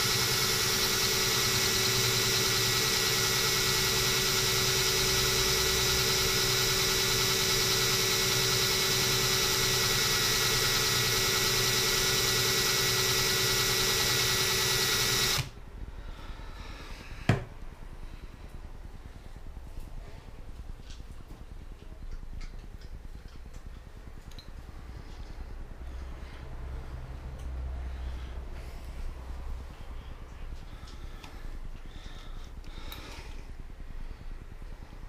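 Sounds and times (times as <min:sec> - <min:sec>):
cordless drill whining: 0:00.0 - 0:15.6.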